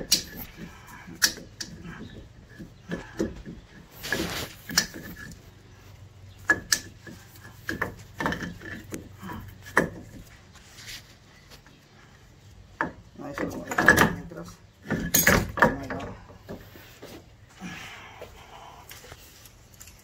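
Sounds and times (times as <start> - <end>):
tools knocking and clicking: 0.0 - 3.9, 6.4 - 10.2, 12.8 - 16.7
scraping rub: 3.8 - 5.5.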